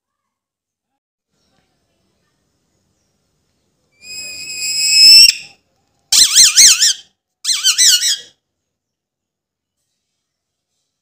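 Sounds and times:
parakeet whistles: 4.0s - 5.6s, 6.2s - 8.3s
parakeet calling loudly: 6.1s - 8.4s.

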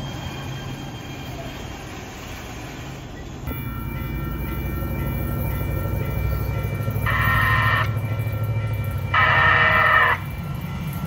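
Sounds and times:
crossing warning bells ringing: 0.0s - 11.0s
train rumbling: 0.0s - 11.0s
train horn blast: 7.0s - 8.0s, 9.1s - 10.3s.

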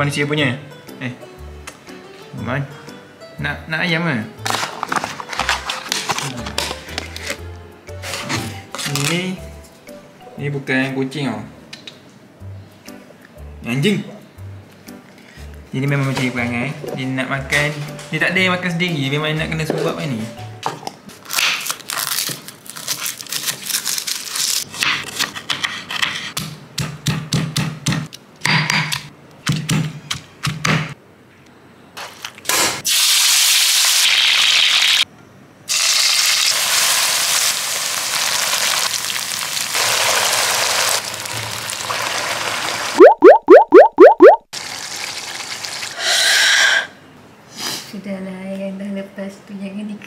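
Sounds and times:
chicken sizzling in hot oil: 32.8s - 35.0s, 35.7s - 43.0s, 44.5s - 46.0s.

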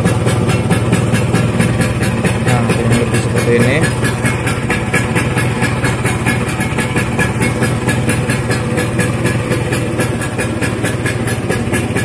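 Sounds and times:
scooter engine idling: 0.0s - 12.0s.

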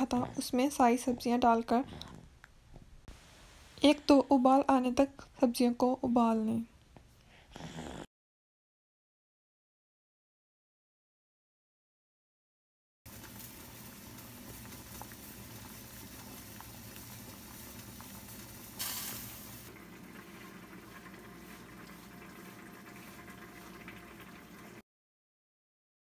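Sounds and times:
pot of water boiling: 13.1s - 24.8s.

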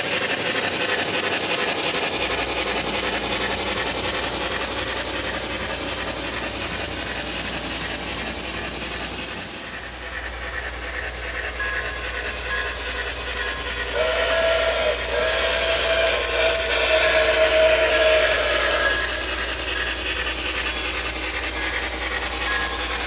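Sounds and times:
steam locomotive running: 0.0s - 23.0s
steam whistle blowing: 13.9s - 19.5s.

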